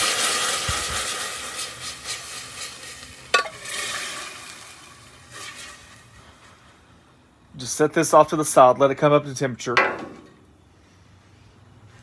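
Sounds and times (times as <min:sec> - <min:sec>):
sauce sizzling in a hot pan: 0:00.0 - 0:06.2
glass jar clinking on pan: 0:03.4 - 0:03.6.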